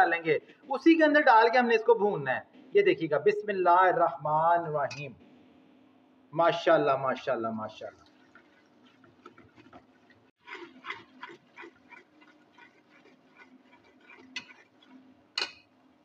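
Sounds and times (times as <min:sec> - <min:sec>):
light sizzle: 0:07.2 - 0:16.0
ladle scraping a pot: 0:08.0 - 0:15.8.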